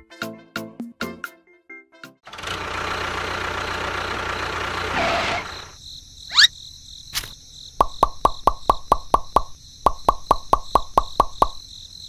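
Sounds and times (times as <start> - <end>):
tractor engine running: 2.3 - 5.8
quick run of plops: 7.8 - 11.6.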